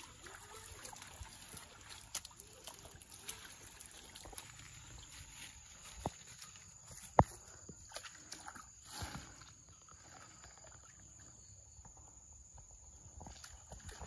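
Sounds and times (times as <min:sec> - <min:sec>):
water sloshing from wading: 0:00.0 - 0:11.5.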